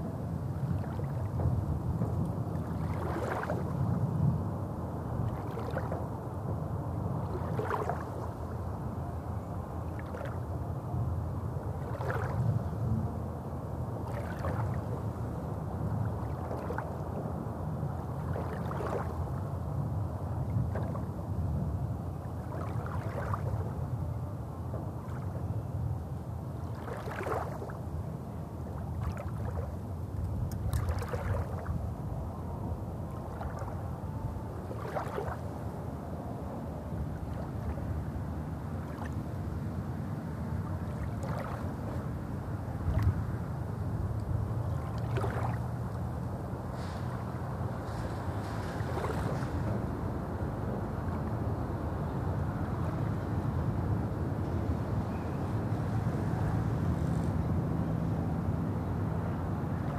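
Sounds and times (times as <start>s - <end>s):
low steady rumble: 0.0s - 59.9s
waves lapping on pebbles: 2.6s - 3.8s, 5.3s - 6.0s, 7.3s - 8.2s, 11.8s - 12.5s, 14.0s - 15.0s, 18.2s - 19.2s, 26.6s - 27.8s, 30.5s - 31.8s, 34.6s - 35.5s, 44.7s - 45.8s, 46.7s - 49.9s.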